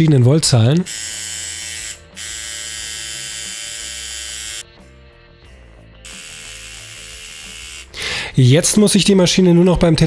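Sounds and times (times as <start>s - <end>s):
tattoo machine buzzing: 0.8s - 4.7s, 6.0s - 8.0s.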